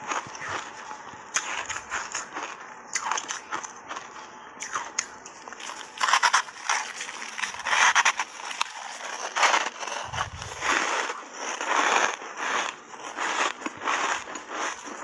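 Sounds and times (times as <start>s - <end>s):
crunching bites of ice: 0.2s - 15.0s.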